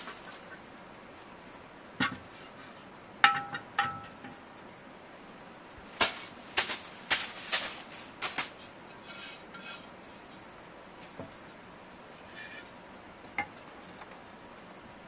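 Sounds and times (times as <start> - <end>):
ceramic plates clinking: 3.2 - 4.4
ceramic plates knocking: 3.2 - 4.4.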